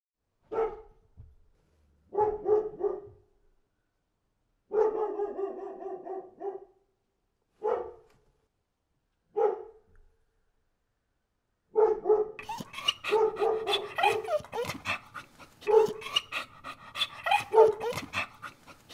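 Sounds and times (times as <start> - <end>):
dog barking: 0.5 - 1.0, 2.1 - 3.2, 4.7 - 6.8, 7.6 - 8.1, 9.3 - 9.8, 11.7 - 18.9.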